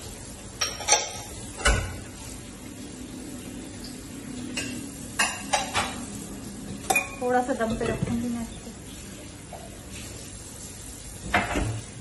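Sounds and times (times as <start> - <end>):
metal utensils clinking on pot: 0.6 - 2.0, 6.8 - 8.3.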